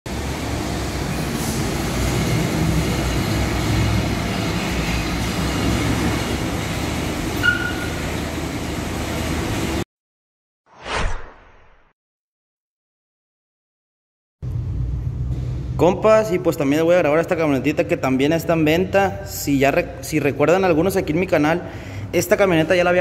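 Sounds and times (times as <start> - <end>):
short swoosh: 10.7 - 11.9.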